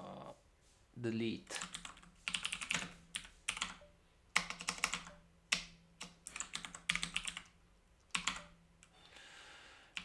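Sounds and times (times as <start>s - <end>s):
computer keyboard typing: 1.6s - 8.9s.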